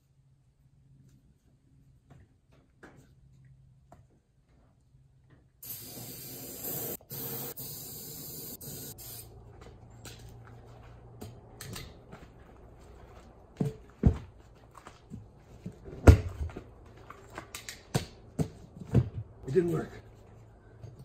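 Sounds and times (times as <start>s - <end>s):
aerosol can hissing: 5.6s - 9.3s.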